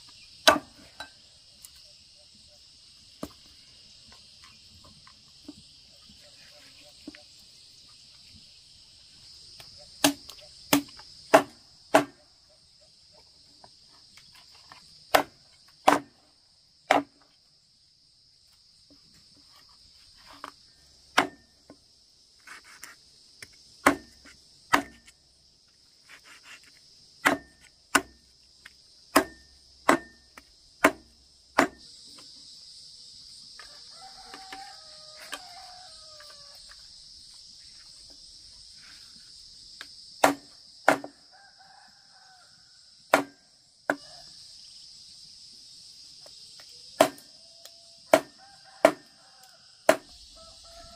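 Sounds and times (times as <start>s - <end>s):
crickets chirring: 0.0s - 50.9s
cleaver chopping on wooden block: 0.4s - 0.7s, 10.0s - 12.2s, 15.1s - 16.1s, 21.2s - 21.4s, 23.8s - 25.1s, 27.2s - 28.2s, 29.1s - 30.2s, 30.8s - 31.8s, 40.2s - 41.1s, 43.1s - 44.0s.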